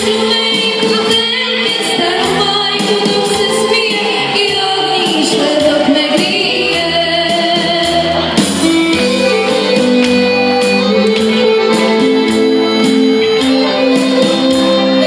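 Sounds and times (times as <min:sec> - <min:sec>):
drums steady beat: 0:00.0 - 0:15.0
live pop band playing: 0:00.0 - 0:15.0
woman singing amplified: 0:00.0 - 0:15.0
held electric guitar notes: 0:08.1 - 0:15.0.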